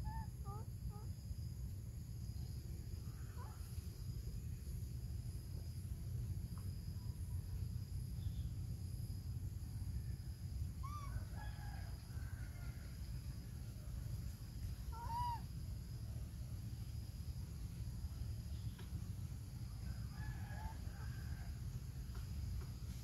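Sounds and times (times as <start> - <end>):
faint high-pitched hum: 0.0 - 23.0
short arched animal calls: 14.9 - 15.5.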